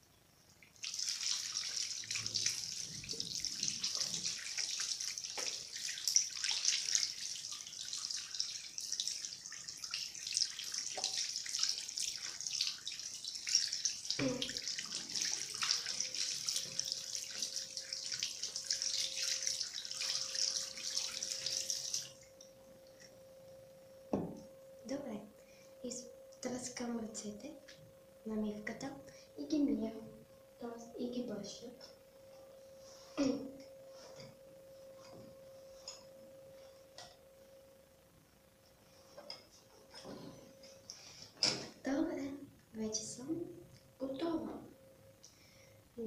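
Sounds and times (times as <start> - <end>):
faint steady tone: 0.0 - 46.0
tap water running: 0.6 - 22.5
hands washing under water: 0.7 - 22.2.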